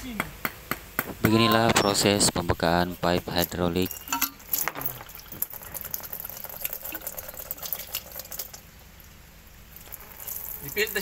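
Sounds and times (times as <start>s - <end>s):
sharp clinks: 3.8s - 5.6s.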